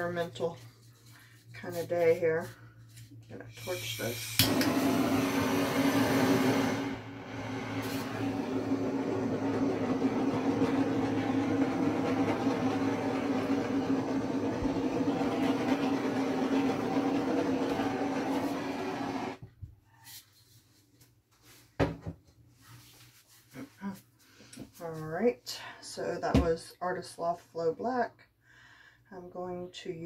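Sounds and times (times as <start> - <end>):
torch flame hissing: 3.5 - 19.4.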